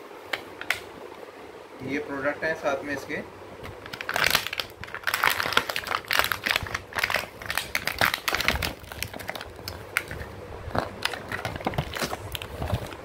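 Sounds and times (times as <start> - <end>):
plastic packaging crinkling: 3.7 - 13.0.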